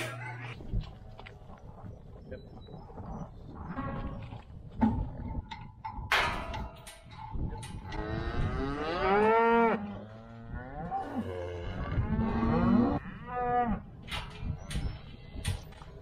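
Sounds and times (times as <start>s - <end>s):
cattle mooing: 7.9s - 13.8s.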